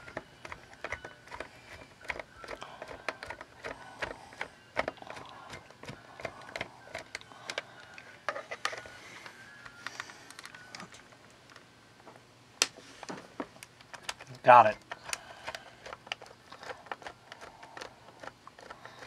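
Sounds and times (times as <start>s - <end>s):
screwdriver clicking and scraping: 0.0s - 7.6s, 8.2s - 8.9s, 13.9s - 19.0s.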